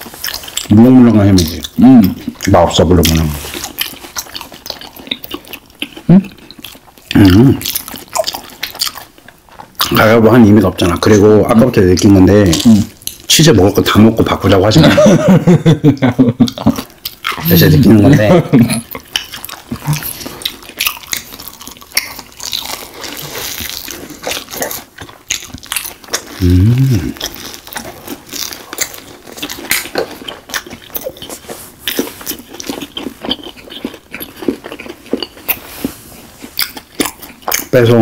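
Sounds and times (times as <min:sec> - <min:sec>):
crunchy chewing: 0:00.0 - 0:14.8, 0:16.5 - 0:38.0
wet mouth sounds: 0:01.3 - 0:10.0, 0:16.4 - 0:37.8
person humming: 0:26.4 - 0:27.2.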